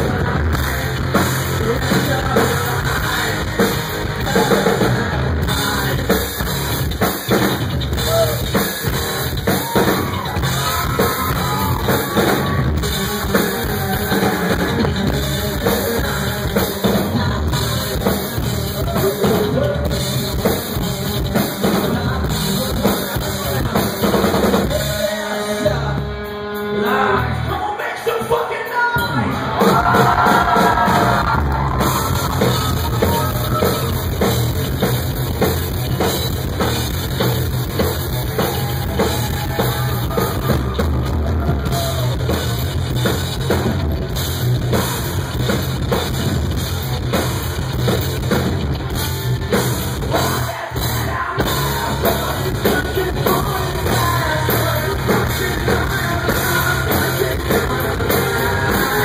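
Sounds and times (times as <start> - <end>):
person singing: 0.0 - 6.5, 9.5 - 34.2, 50.0 - 59.0
pounding drum kit: 0.0 - 27.6, 28.2 - 59.0
rock band playing live: 0.0 - 59.0.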